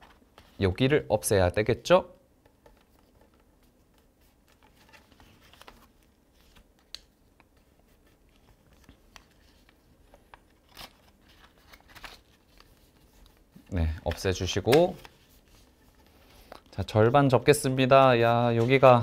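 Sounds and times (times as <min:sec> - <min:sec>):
paper rustling and creasing: 0:02.7 - 0:16.8.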